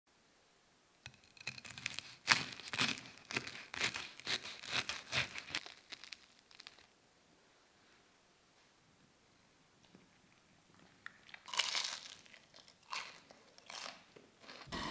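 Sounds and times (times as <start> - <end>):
knife crunching through fried crust: 1.1 - 6.9.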